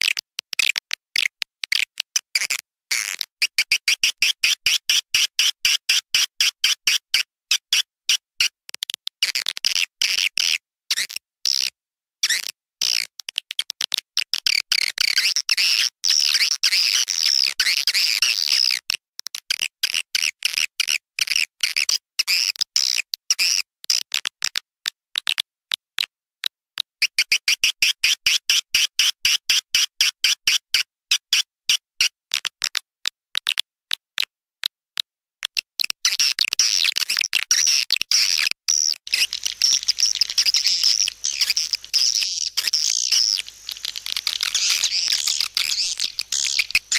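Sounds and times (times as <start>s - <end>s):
recorded swiftlet twittering: 38.7s - 46.9s.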